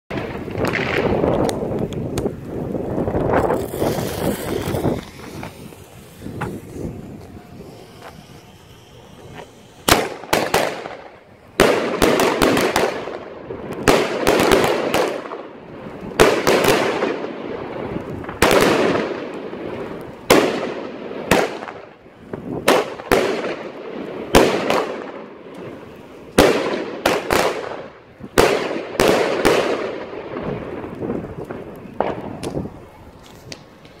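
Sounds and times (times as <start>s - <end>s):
firework star bursts: 3.0s - 34.0s
firework launch thumps: 3.1s - 11.0s.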